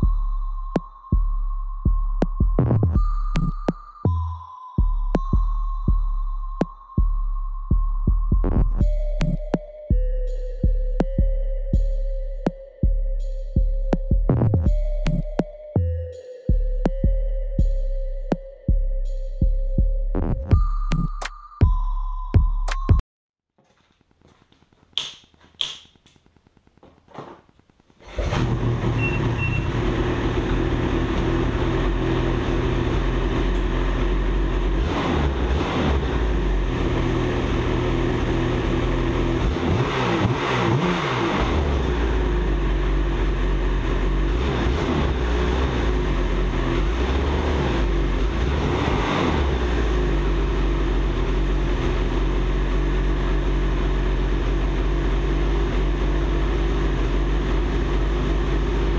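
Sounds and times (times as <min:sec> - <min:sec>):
engine revving: 0:28.0 - 0:58.9
two-stroke engine running: 0:28.0 - 0:58.9.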